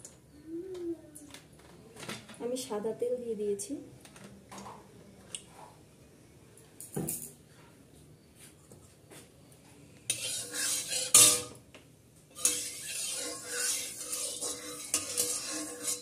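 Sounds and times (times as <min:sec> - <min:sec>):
metal spatula clanking on pan: 0:10.1 - 0:11.6, 0:12.4 - 0:16.0
spatula scraping metal pan: 0:10.1 - 0:11.6, 0:12.3 - 0:16.0.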